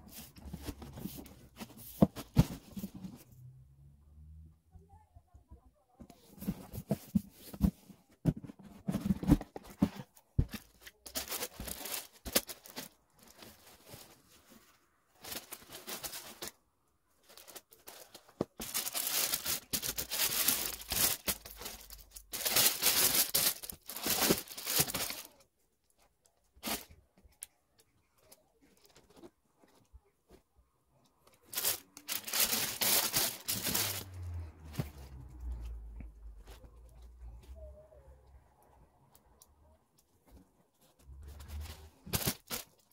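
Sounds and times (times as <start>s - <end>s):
tissue paper rustling: 8.4s - 16.6s, 17.2s - 25.4s, 31.4s - 35.6s, 41.1s - 42.9s.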